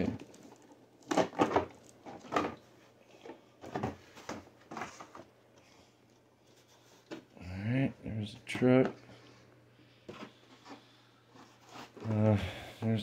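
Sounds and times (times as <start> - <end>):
cardboard scraping and rustling: 3.7 - 5.3.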